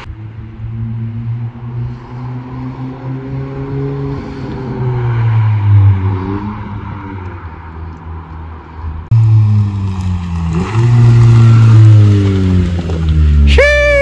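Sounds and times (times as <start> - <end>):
car exhaust driving by: 8.7 - 14.0.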